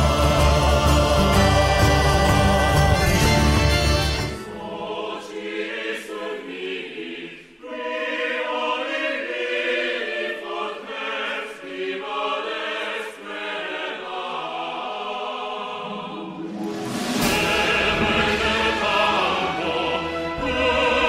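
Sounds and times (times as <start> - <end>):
choir singing long notes: 0.0 - 21.0.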